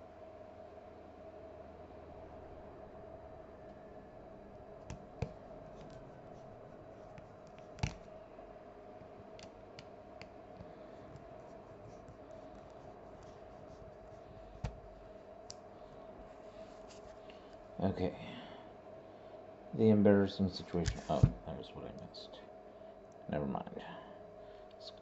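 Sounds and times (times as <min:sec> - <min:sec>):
steady hum: 0:00.0 - 0:25.0
faint clicks and taps: 0:04.8 - 0:06.4, 0:07.1 - 0:08.1.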